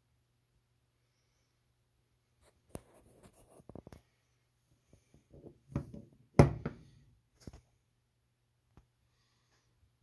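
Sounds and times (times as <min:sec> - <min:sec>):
light taps and scrapes: 0:02.4 - 0:04.1.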